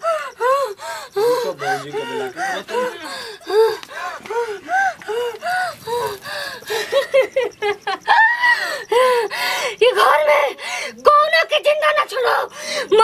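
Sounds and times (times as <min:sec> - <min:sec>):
woman gasping and huffing cries: 0:00.0 - 0:07.3, 0:08.0 - 0:09.8, 0:10.6 - 0:11.0.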